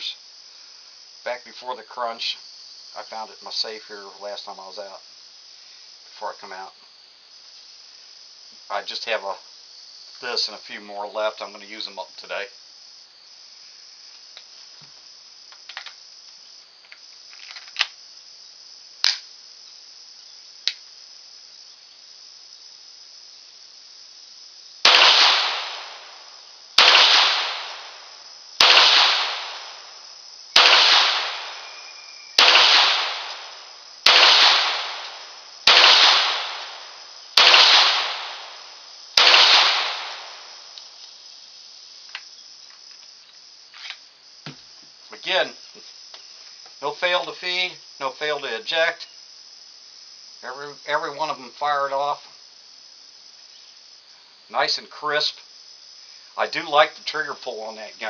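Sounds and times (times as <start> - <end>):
pistol shots: 24.8 - 26.2, 26.8 - 29.9, 30.6 - 40.6.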